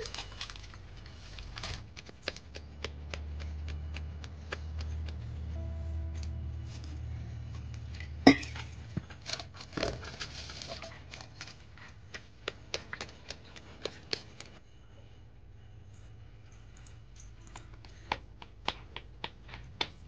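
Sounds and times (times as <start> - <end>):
hands patting dough: 0.8 - 5.6, 11.0 - 14.6, 17.6 - 20.0.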